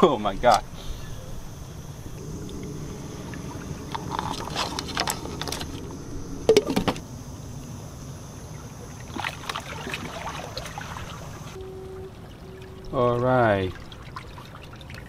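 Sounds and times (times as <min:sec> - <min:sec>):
low rumble: 0:00.3 - 0:09.2.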